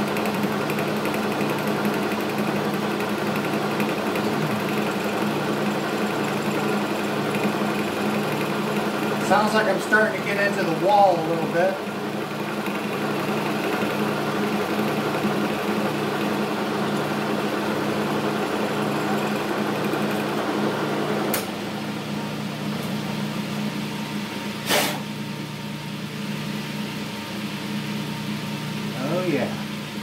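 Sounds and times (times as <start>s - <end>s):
lathe tool cutting metal: 0.0s - 21.2s
metal lathe humming: 0.0s - 24.6s
sharp click: 21.3s - 21.5s
sharp clunk: 24.6s - 25.0s.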